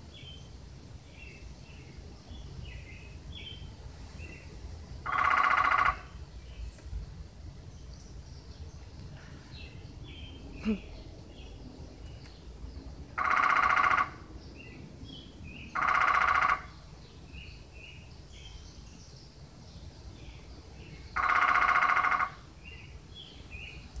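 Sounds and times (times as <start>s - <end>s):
small birds chirping: 0.0s - 24.0s
woodpecker drumming: 5.0s - 6.2s, 13.2s - 14.3s, 15.7s - 16.8s, 21.2s - 22.5s.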